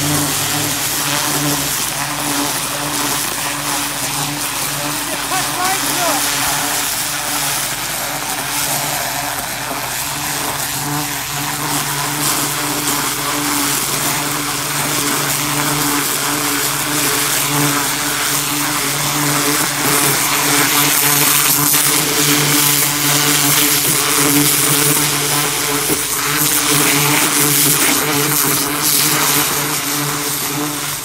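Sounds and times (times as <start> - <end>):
water jet hissing into soil: 0.0 - 19.1
pressure washer motor humming: 0.0 - 31.0.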